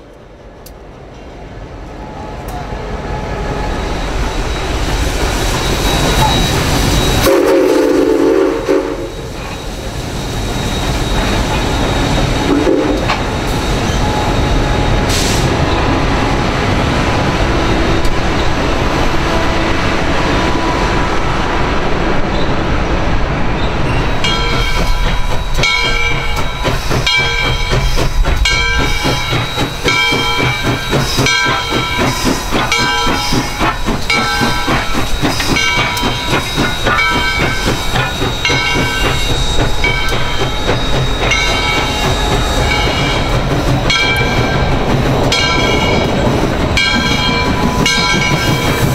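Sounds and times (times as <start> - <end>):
diesel train rumbling: 0.0 - 48.9
steam hissing: 3.3 - 15.8, 23.8 - 48.9
locomotive bell ringing: 23.9 - 48.9.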